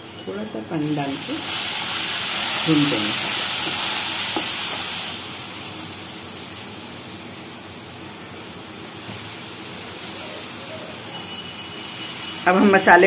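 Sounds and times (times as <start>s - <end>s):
onions sizzling in hot oil: 0.0s - 13.0s.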